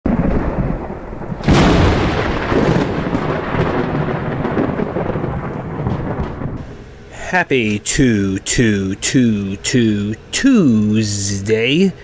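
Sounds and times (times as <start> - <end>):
thunderclap: 0.1 - 6.6
rolling thunder rumble: 0.1 - 6.7.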